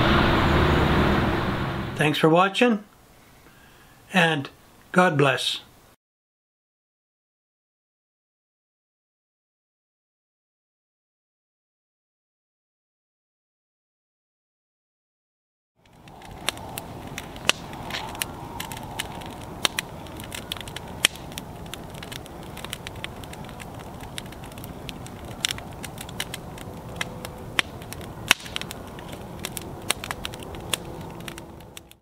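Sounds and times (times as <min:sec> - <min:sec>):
wood fire crackling: 0:15.8 - 0:32.0.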